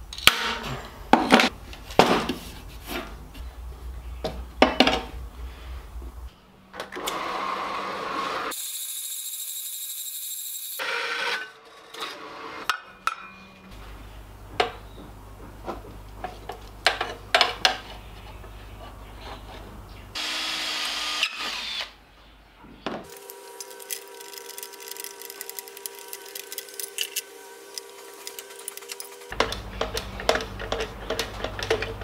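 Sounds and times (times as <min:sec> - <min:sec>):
power drill running: 0:20.2 - 0:22.0, 0:23.1 - 0:29.4
bandsaw cutting metal: 0:23.1 - 0:29.3
metal parts clicking and knocking: 0:23.1 - 0:32.0.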